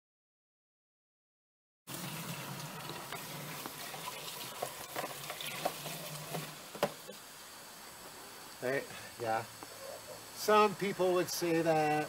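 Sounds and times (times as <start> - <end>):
hose water filling container: 1.9 - 7.3.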